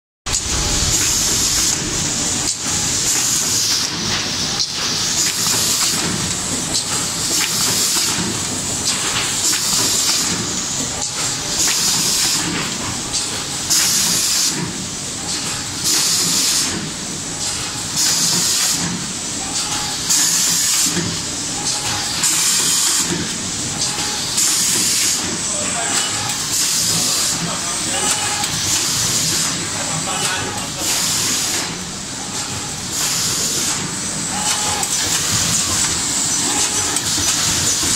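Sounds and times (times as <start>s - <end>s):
machine mechanical clatter: 0.3s - 37.9s
pneumatic air hissing: 30.8s - 31.7s, 32.9s - 37.9s.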